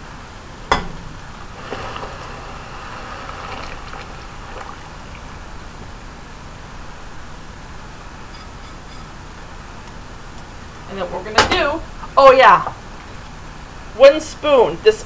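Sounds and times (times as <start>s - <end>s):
sharp knock on metal: 0.7s - 1.1s
sugar pouring into water hiss: 1.5s - 5.7s.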